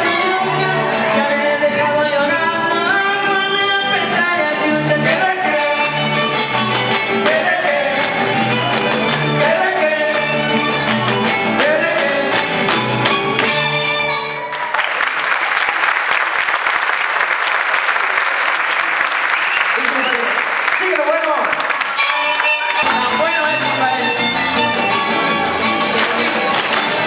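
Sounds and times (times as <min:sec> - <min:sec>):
person singing: 0:00.0 - 0:12.7
strummed guitars: 0:00.0 - 0:14.5, 0:21.9 - 0:27.0
audience applauding: 0:06.5 - 0:23.5, 0:24.9 - 0:27.0.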